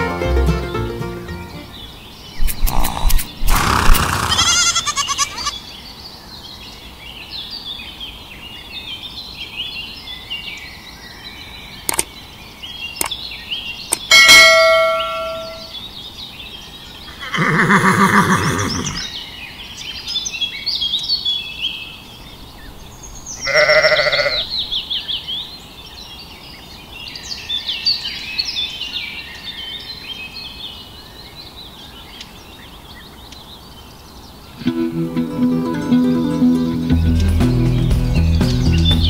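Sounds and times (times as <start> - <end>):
birds chirping: 0.7 - 39.0
livestock bleating: 3.6 - 5.6, 23.4 - 24.5.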